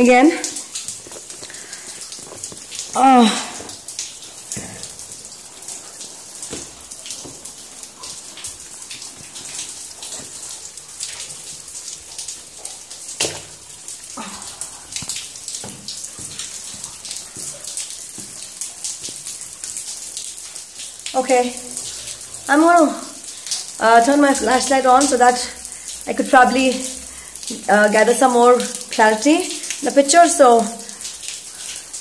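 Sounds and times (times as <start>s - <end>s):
footsteps splashing through shallow water: 14.6s - 19.6s.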